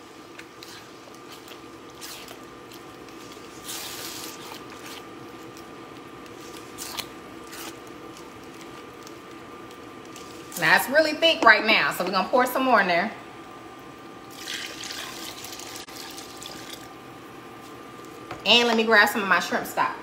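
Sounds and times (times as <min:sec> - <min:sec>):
spatula squelching in thick stew: 0:00.4 - 0:05.1.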